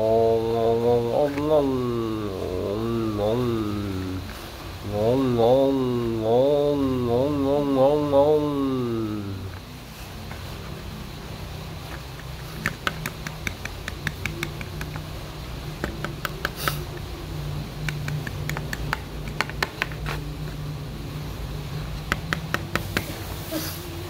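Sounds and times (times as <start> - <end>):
steady low hum: 0.0 - 24.0
toy clicking on wooden boards: 11.9 - 15.2, 15.8 - 17.1, 17.8 - 20.2, 22.0 - 23.1.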